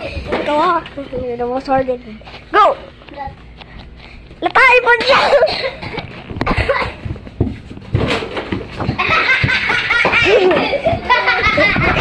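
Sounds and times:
children laughing loudly: 0:05.2 - 0:07.0, 0:08.9 - 0:12.0.

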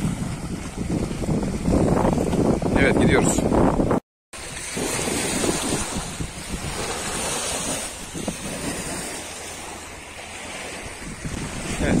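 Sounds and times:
wind on microphone: 0:00.0 - 0:12.0
waves lapping on pebble shore: 0:04.4 - 0:12.0.

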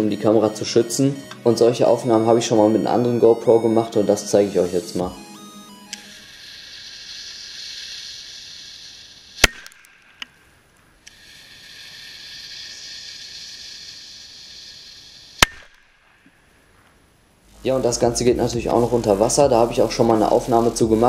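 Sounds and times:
fuse hissing: 0:06.0 - 0:15.9, 0:17.4 - 0:21.0.

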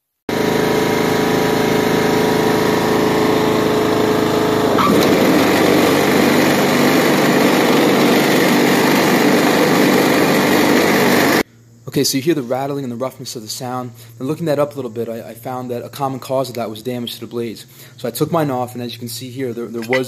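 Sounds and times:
riding lawn mower engine: 0:00.3 - 0:11.4
mower blades rattling: 0:01.9 - 0:11.0.

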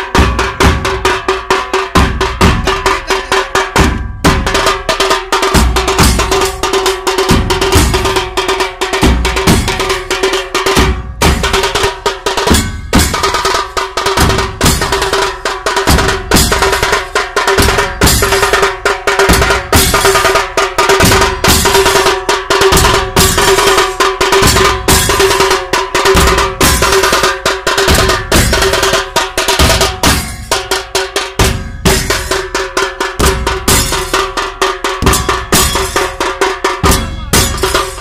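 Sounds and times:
large drums beaten fast: 0:00.0 - 0:38.0.

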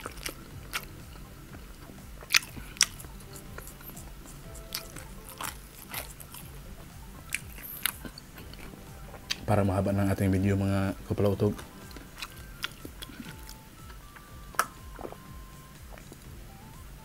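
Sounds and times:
chewing with mouth clicks: 0:00.0 - 0:16.4
small crunches: 0:02.2 - 0:06.5.

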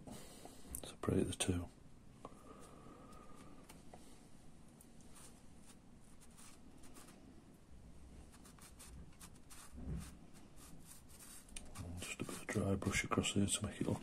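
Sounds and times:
brush scratching on paper: 0:05.1 - 0:07.2, 0:08.3 - 0:13.0.

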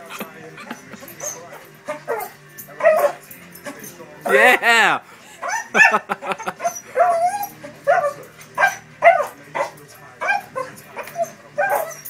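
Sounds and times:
dog barking and yipping: 0:00.6 - 0:03.3, 0:05.4 - 0:12.0.

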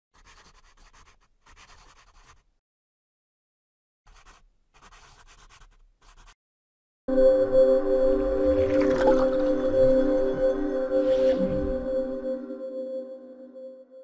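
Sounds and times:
pen scratching on paper: 0:00.2 - 0:02.5, 0:04.1 - 0:06.4.

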